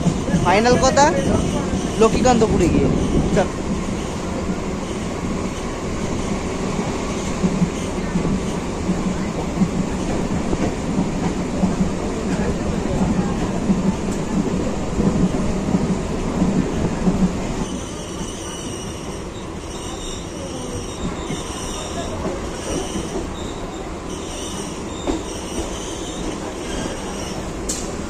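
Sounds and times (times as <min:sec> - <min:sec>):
train wheels rumbling: 0:00.0 - 0:28.0
train wheel squeal: 0:17.6 - 0:27.4.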